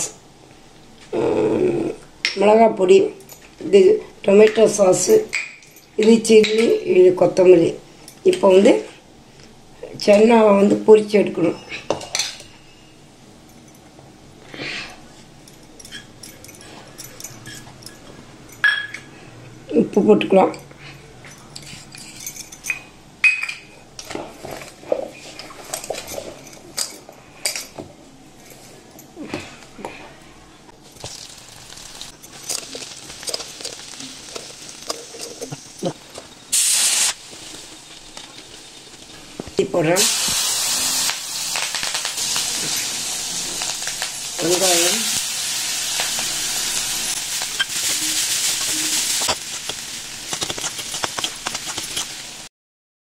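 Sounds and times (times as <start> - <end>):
light clicks and clinks in bowl: 15.5 - 19.0
food deep-frying in oil: 30.8 - 52.5
soft rustle of chickpeas: 30.9 - 36.0.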